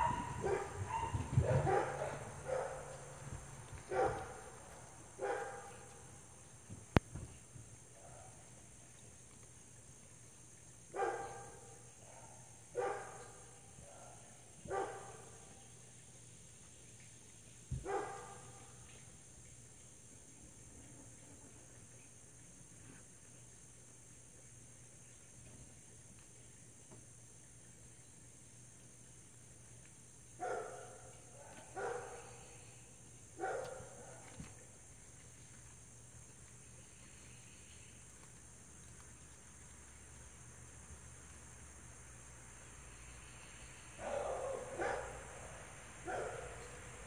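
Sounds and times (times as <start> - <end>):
dog barking: 0.0 - 3.1, 3.9 - 4.6, 5.2 - 6.0, 11.0 - 15.3, 17.8 - 18.5, 30.4 - 32.5, 33.4 - 34.4, 44.0 - 46.8.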